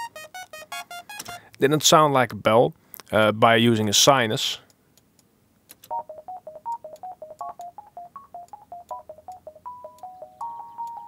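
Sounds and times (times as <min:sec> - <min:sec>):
synth sine-wave beeping melody: 0:00.0 - 0:01.4, 0:05.9 - 0:11.0.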